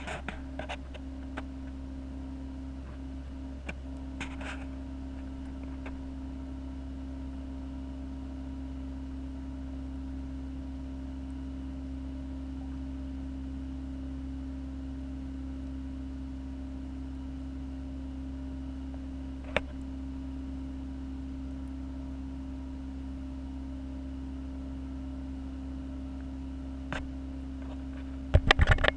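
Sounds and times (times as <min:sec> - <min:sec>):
aquarium pumps humming: 0:00.0 - 0:28.9.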